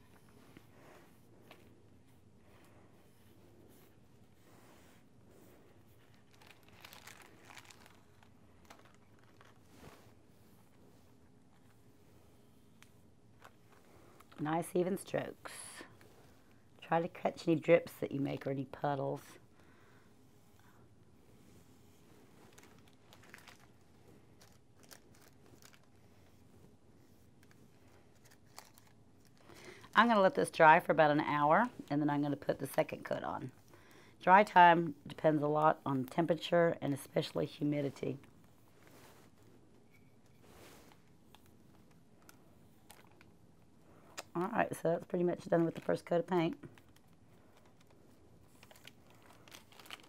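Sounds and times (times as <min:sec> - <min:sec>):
paintbrush ticks and rustles: 0:00.0 - 0:19.0
wax paper crinkling: 0:03.3 - 0:12.0, 0:12.7 - 0:20.0, 0:21.3 - 0:50.0.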